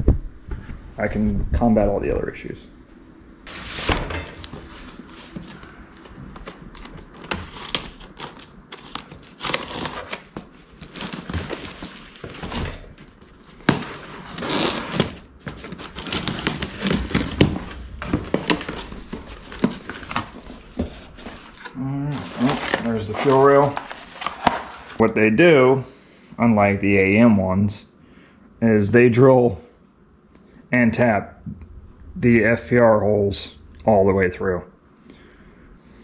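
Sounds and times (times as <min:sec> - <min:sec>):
packing material crinkling: 0:03.5 - 0:25.1.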